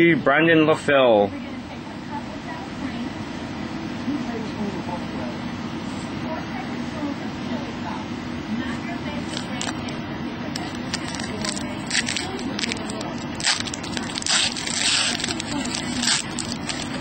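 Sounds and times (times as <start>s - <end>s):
steady low hum: 0.0s - 17.0s
foil wrapper crinkling: 10.6s - 17.0s.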